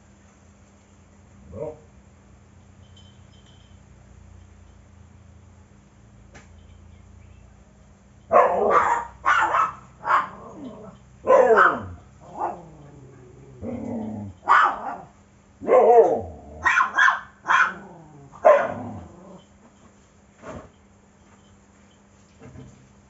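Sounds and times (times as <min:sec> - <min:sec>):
dog barking: 0:01.5 - 0:01.9, 0:08.3 - 0:10.6, 0:11.2 - 0:12.8, 0:14.4 - 0:19.2.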